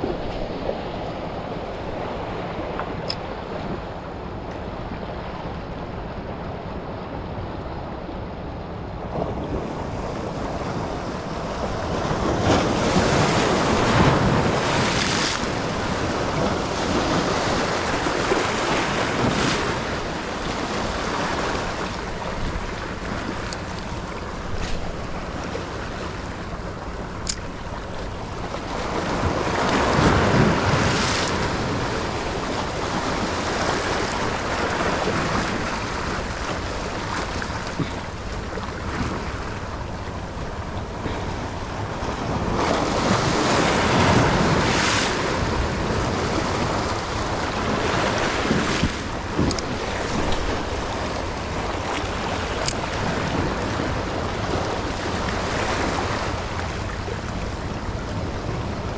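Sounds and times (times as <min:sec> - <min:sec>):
sea waves washing onto beach: 0:00.0 - 0:08.0, 0:08.9 - 0:58.9
sharp click: 0:27.2 - 0:27.5.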